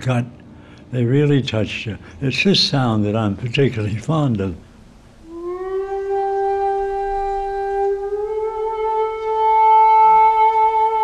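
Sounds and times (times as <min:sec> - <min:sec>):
flute long held note: 0:05.2 - 0:11.0.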